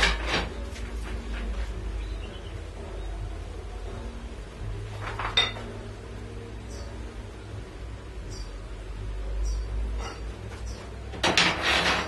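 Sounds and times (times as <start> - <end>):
metal parts handling noises: 0.0 - 1.5, 5.0 - 5.7, 10.0 - 12.0
metal parts scraping and clanking: 0.0 - 1.6, 5.0 - 5.7, 10.0 - 10.4, 11.1 - 12.0.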